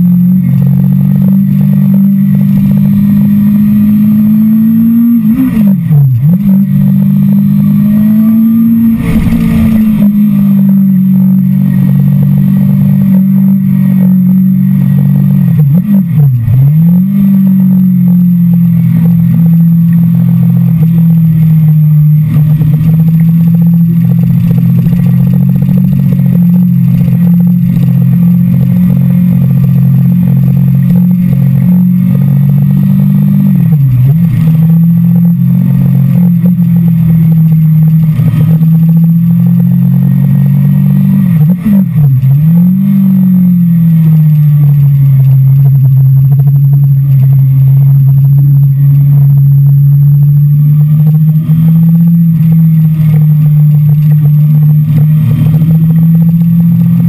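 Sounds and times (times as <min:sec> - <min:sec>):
motorcycle engine running: 0:06.8 - 0:16.4, 0:20.3 - 0:57.0.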